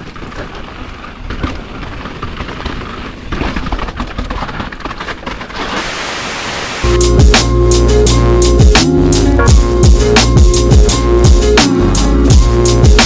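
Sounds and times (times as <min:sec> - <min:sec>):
bike frame rattling and knocking: 0:00.0 - 0:05.6
tyres crunching over loose ground: 0:00.0 - 0:06.2.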